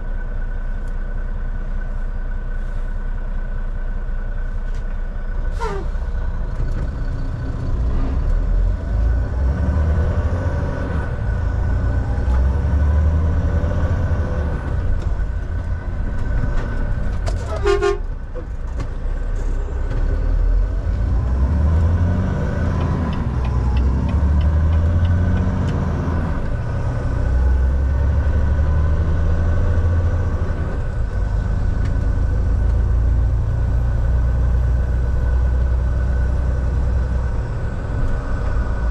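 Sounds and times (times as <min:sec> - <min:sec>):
road noise: 0:00.0 - 0:38.9
truck diesel engine running: 0:00.0 - 0:38.9
truck horn toot: 0:05.5 - 0:06.0, 0:17.4 - 0:18.2.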